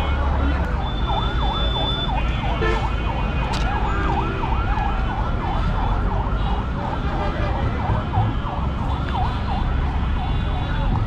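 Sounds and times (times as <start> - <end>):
electronic siren wail: 0.0 - 7.1
street traffic rumble: 0.0 - 11.0.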